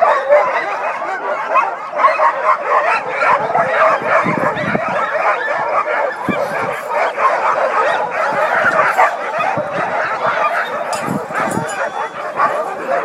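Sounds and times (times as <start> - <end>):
sled dogs barking and whining: 0.0 - 13.0.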